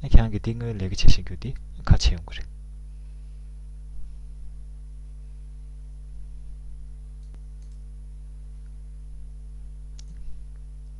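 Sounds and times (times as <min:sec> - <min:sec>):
low electrical hum: 0:00.0 - 0:10.9
sharp click: 0:07.2 - 0:07.8, 0:10.0 - 0:10.2.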